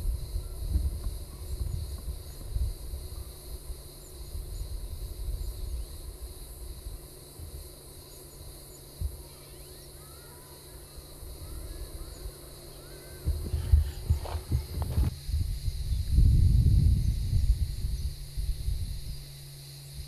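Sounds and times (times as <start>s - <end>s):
wind buffeting microphone: 0.0s - 6.2s, 13.2s - 19.2s
high insect drone: 0.0s - 20.0s
bird chirps: 9.3s - 10.8s.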